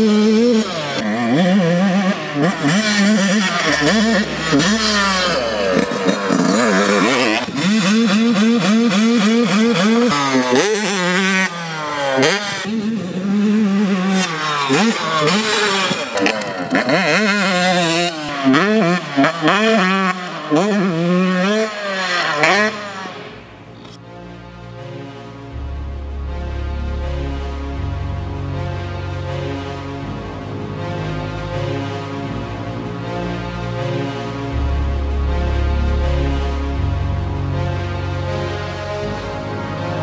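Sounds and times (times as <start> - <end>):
dirt bike revving: 0.0 - 24.0.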